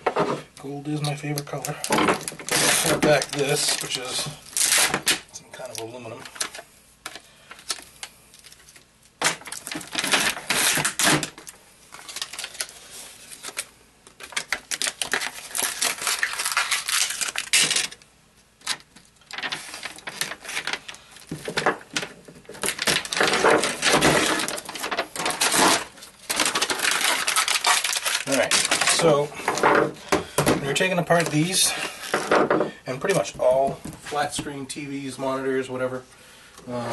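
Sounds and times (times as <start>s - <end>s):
metal foil crinkling and tearing: 0.8s - 18.0s, 18.6s - 29.4s.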